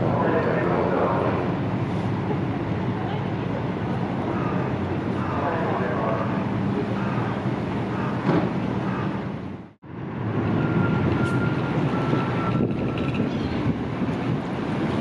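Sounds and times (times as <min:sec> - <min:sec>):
ship engines rumbling: 0:00.0 - 0:15.0
wind noise on microphone: 0:10.2 - 0:15.0.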